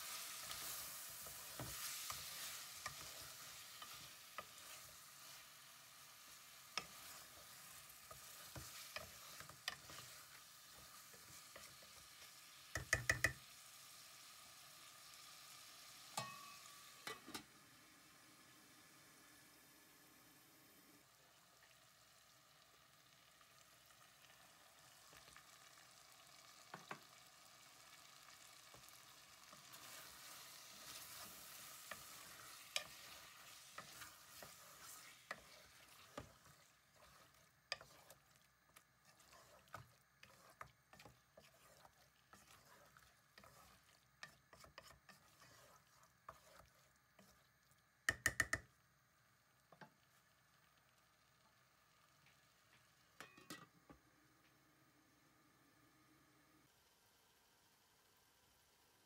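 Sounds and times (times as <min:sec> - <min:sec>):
wooden spoon stirring in a pot: 0:00.0 - 0:13.6, 0:26.5 - 0:48.7
food sizzling in a pot: 0:00.0 - 0:59.0
spoon knocking against pot: 0:12.7 - 0:13.4, 0:48.1 - 0:48.7.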